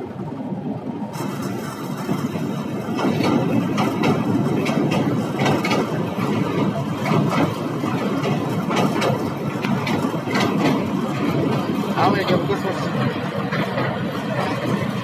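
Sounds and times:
train wheels on rail: 0:00.0 - 0:15.0.

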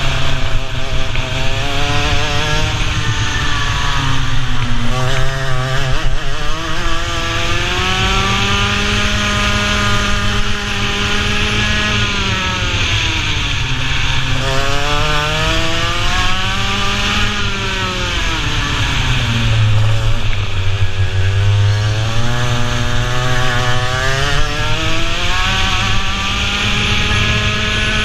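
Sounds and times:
racing kart engine accelerating: 0:00.0 - 0:28.0.

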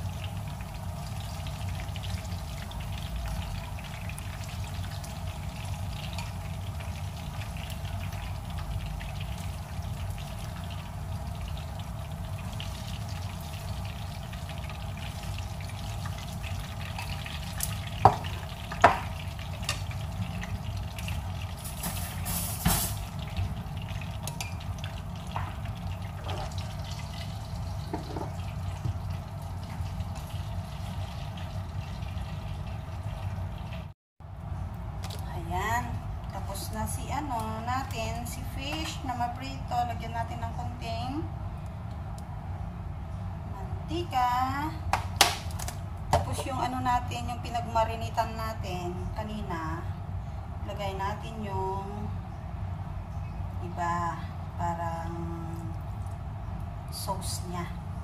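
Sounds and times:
fish frying in oil: 0:00.0 - 0:33.9.

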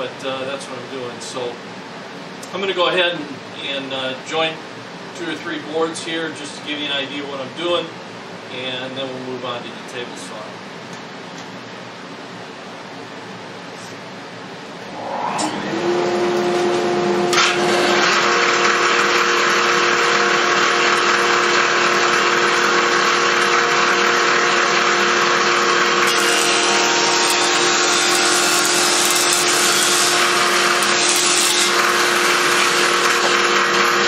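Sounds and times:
second machine tone: 0:14.8 - 0:18.2
board being cut by jointer: 0:15.6 - 0:34.0
jointer motor running: 0:15.8 - 0:34.0.

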